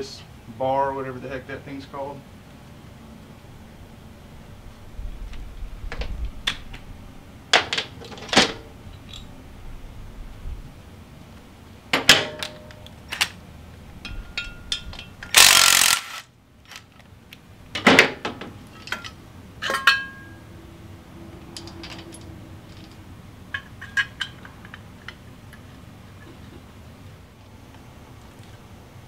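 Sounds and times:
tools and metal parts clanking: 7.6 - 9.3, 14.0 - 17.0, 17.8 - 20.4, 21.5 - 26.6
power tool burst: 15.3 - 16.3.

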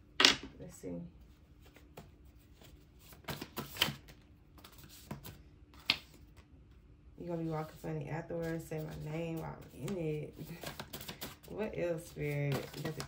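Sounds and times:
cards rustling and snapping: 2.6 - 6.4, 9.7 - 11.5, 12.2 - 13.0.

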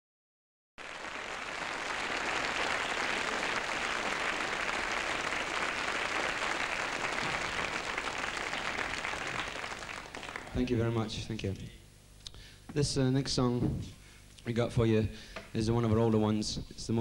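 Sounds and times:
studio audience applauding: 0.8 - 10.9.

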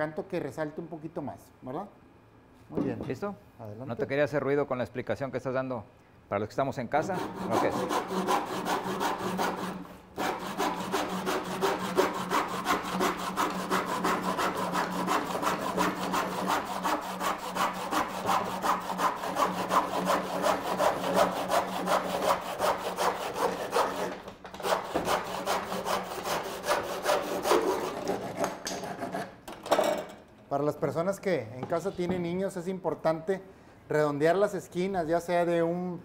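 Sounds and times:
hand saw cutting wood: 7.0 - 29.4.

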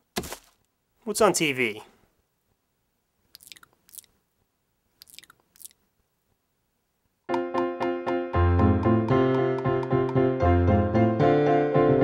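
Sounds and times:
crunchy chewing: 3.4 - 4.1, 5.0 - 5.8
piano music: 7.3 - 12.0.

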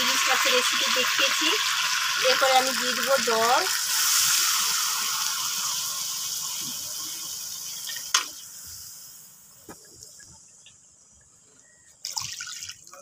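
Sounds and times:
fish sizzling in oil: 0.0 - 9.8.

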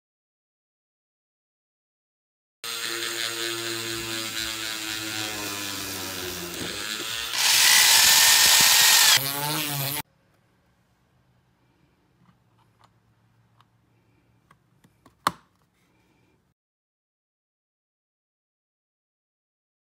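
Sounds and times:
drill bit cutting wood hiss: 2.6 - 10.0
rotary tool motor whine: 2.6 - 10.0.

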